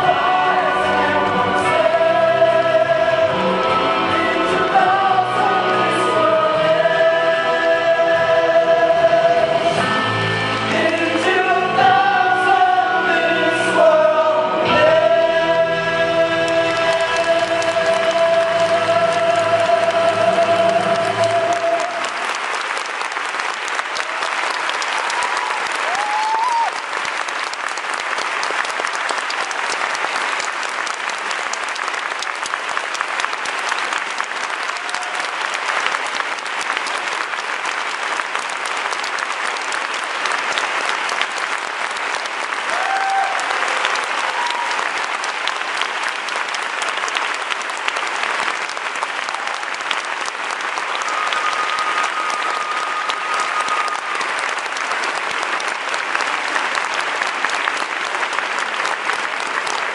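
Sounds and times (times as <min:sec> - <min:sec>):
audience applauding: 0:15.4 - 0:59.9.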